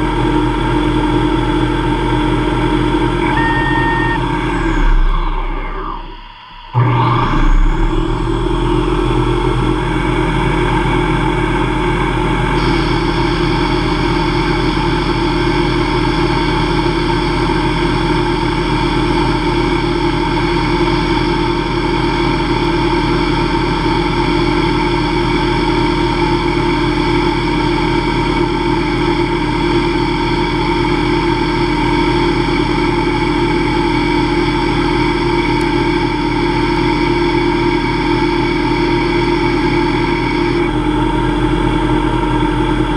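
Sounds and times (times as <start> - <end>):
higher machine tone: 0.0 - 17.7, 26.0 - 42.9
lathe humming: 1.8 - 15.4.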